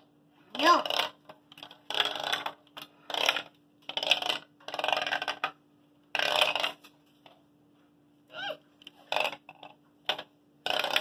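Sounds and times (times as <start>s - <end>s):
marble rolling on plastic studs: 0.0s - 7.4s, 8.8s - 11.0s
marble clattering against plastic walls: 0.5s - 7.0s, 8.9s - 11.0s.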